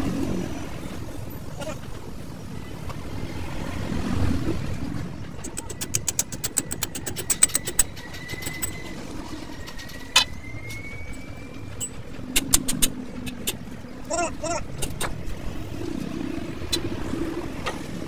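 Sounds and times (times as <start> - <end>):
metallic clicks of hand tool: 5.5 - 8.7.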